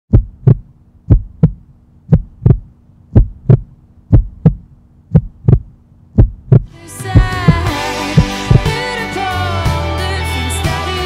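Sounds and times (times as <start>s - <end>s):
heartbeat double thump: 0.1s - 8.7s
faint steady hum: 0.1s - 8.8s.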